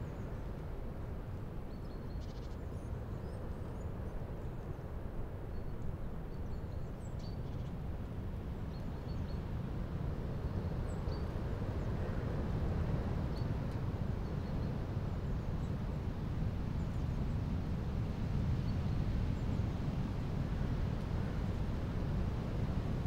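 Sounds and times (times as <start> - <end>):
gusty wind through branches: 0.0 - 23.0.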